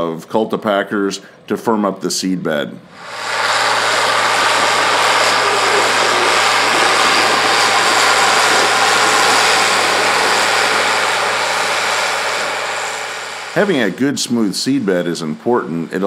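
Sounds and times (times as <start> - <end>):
tractor diesel engine under load: 3.0 - 14.1
broad hiss: 3.0 - 14.8.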